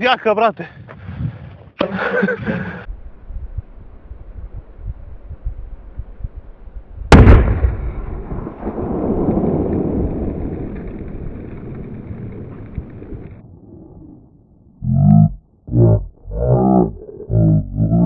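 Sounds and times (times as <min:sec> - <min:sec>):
wind noise on microphone: 0:00.7 - 0:13.9
rumbling echo: 0:07.1 - 0:17.3.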